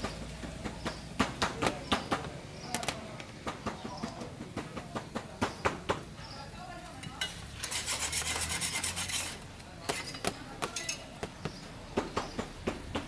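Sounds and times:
metal scraper dragging on steel: 7.5 - 9.5
scraper chopping dough on steel: 7.6 - 10.0.

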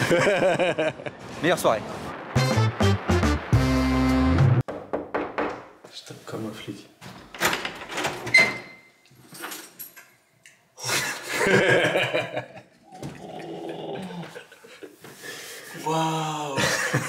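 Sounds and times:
door opening: 7.0 - 9.8
person crying out in surprise: 15.8 - 16.6.

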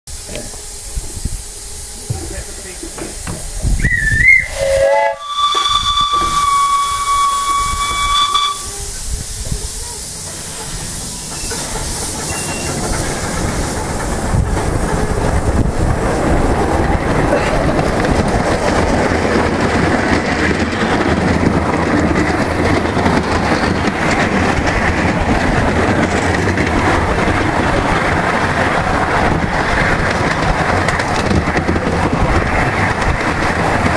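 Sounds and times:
hissing steam: 0.1 - 33.9
train wheels clattering on rails: 2.0 - 33.9
steam locomotive whistle: 3.8 - 10.2.

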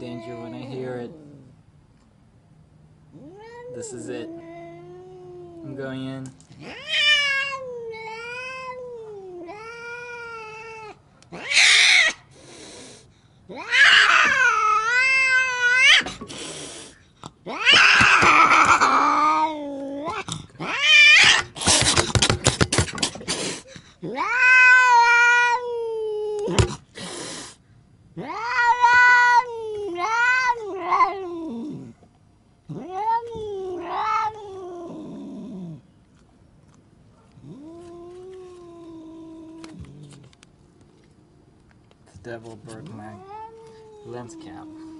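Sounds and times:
cat yowling and growling: 0.0 - 1.6, 3.1 - 6.0, 6.6 - 12.3, 13.5 - 16.2, 16.8 - 22.1, 24.0 - 26.9, 28.1 - 35.9, 37.3 - 40.4, 42.9 - 44.9
cat hissing: 9.4 - 25.6, 26.4 - 27.6, 32.7 - 35.7, 43.1 - 44.9.

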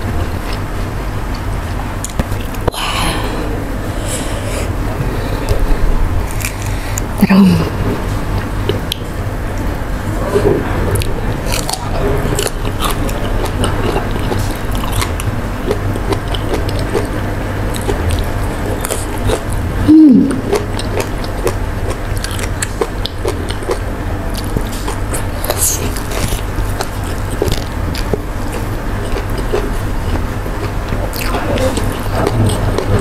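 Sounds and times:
crunching raw vegetables: 5.6 - 7.1, 10.4 - 19.7, 20.3 - 33.0
short falling vocal sound: 19.9 - 20.5.

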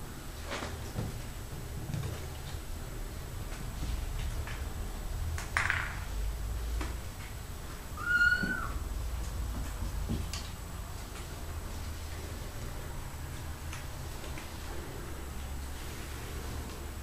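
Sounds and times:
kitten mewing: 8.0 - 8.8.

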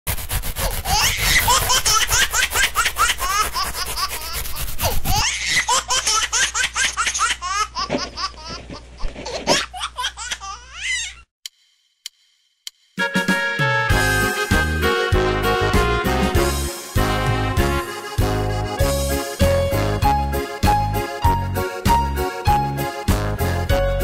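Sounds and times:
babies laughing and giggling: 0.9 - 11.2.

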